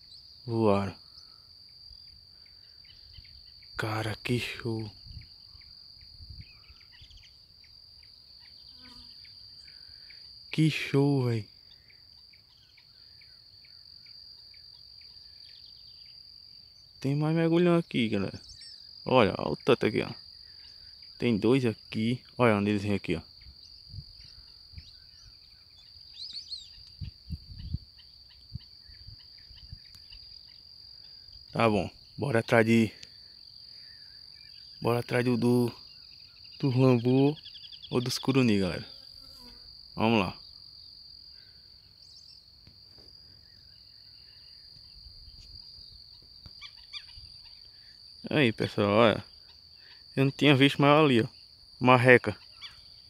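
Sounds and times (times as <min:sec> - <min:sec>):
insects droning: 0:00.0 - 0:53.0
high bird calls: 0:46.6 - 0:48.0, 0:52.2 - 0:53.0.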